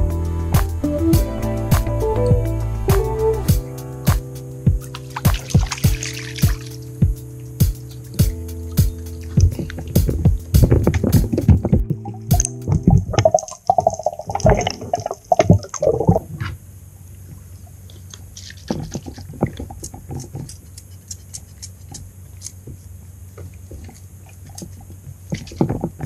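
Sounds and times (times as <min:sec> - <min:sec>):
water gurgling and bubbling: 0:05.0 - 0:06.8, 0:09.2 - 0:16.5.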